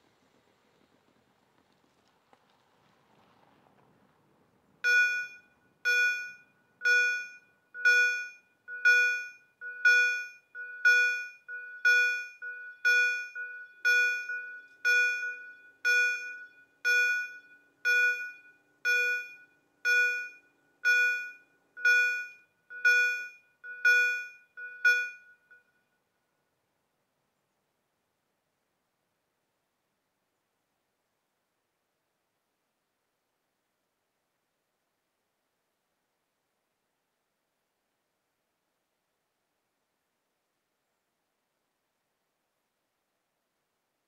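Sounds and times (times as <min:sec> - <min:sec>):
level crossing warning bell: 0:04.8 - 0:26.0.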